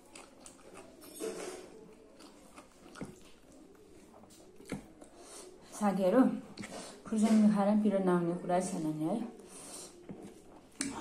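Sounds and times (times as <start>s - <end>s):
person chewing food: 0.0s - 5.7s, 6.4s - 7.0s, 9.3s - 11.0s.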